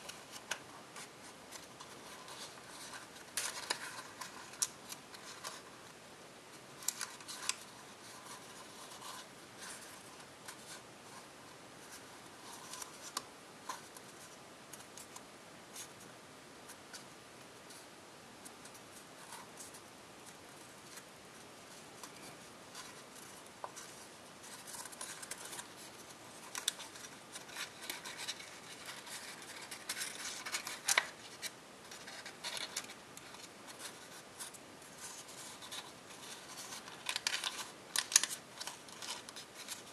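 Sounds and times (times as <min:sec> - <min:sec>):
foil crinkling: 0:35.6 - 0:39.9.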